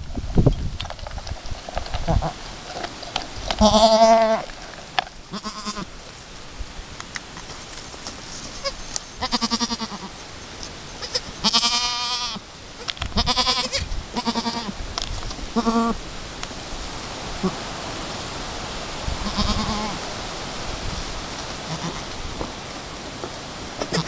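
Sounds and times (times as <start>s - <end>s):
goats bleating: 3.6s - 4.5s, 5.3s - 5.9s, 8.6s - 10.2s, 11.0s - 12.4s, 13.2s - 14.8s, 15.6s - 16.0s, 19.2s - 20.0s, 21.6s - 22.1s, 23.8s - 24.0s.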